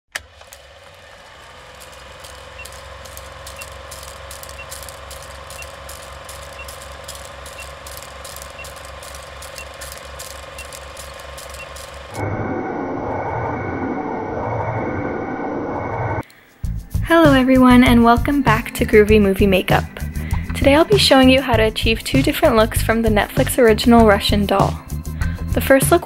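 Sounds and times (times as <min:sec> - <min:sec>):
film crackle and pops: 0:00.1 - 0:12.2
film projector clatter: 0:00.1 - 0:12.2
music: 0:16.3 - 0:26.0.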